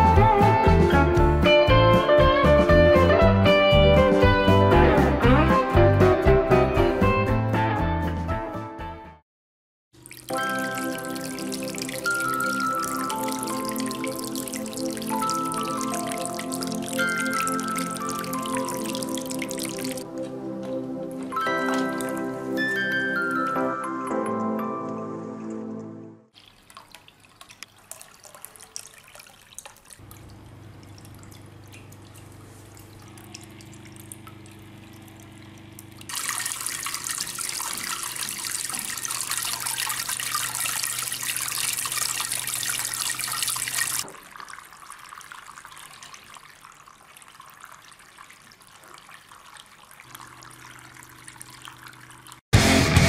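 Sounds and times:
water trickling over stones: 10.0s - 20.4s, 21.2s - 22.4s, 26.3s - 52.4s.

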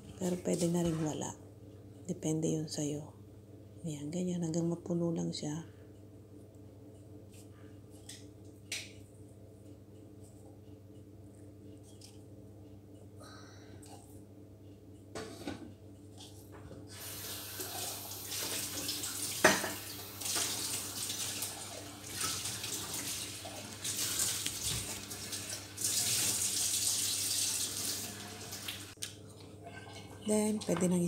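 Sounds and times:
water running from a tap: 16.9s - 29.0s.

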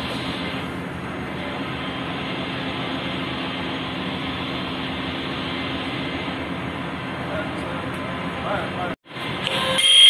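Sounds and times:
engine-room machinery droning: 0.0s - 10.0s.

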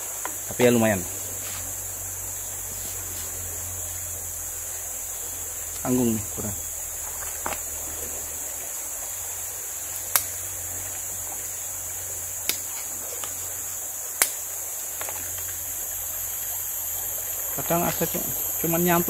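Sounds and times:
forest insects droning: 0.0s - 19.0s
faint ticks: 9.9s - 11.0s, 12.4s - 13.5s.

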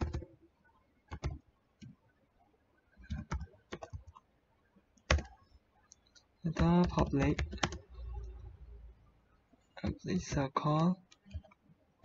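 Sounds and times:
computer keyboard keystrokes: 0.0s - 0.3s, 1.1s - 1.9s, 3.0s - 4.2s, 5.0s - 5.4s, 6.1s - 7.8s.

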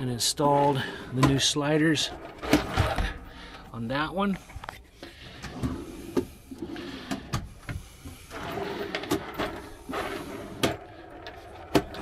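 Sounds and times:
drawer slide rolling: 0.7s - 3.3s, 5.3s - 7.3s, 8.1s - 12.0s.

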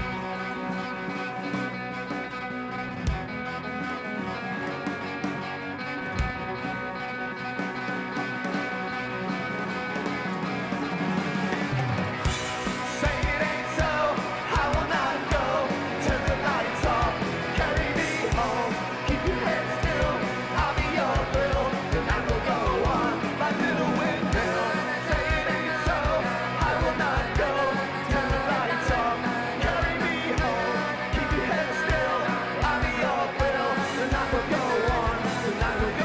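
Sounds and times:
bass guitar: 0.0s - 36.0s
drums with kick-drum beat: 0.0s - 36.0s
electric guitars: 0.0s - 36.0s
man singing: 12.4s - 36.0s.

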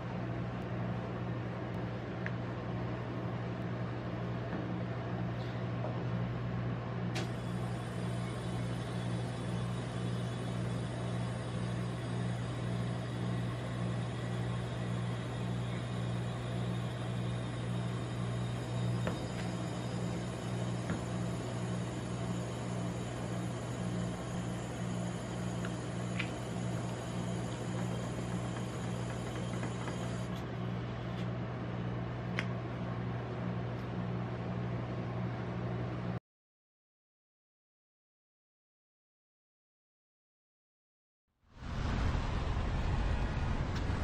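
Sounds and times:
refrigerated cold plate humming: 0.0s - 34.7s.

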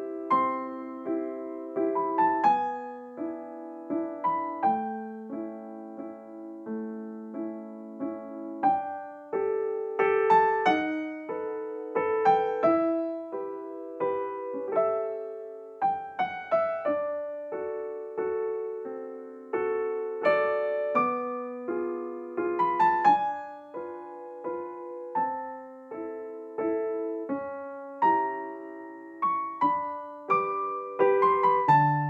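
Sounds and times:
gentle piano melody: 0.0s - 32.0s.

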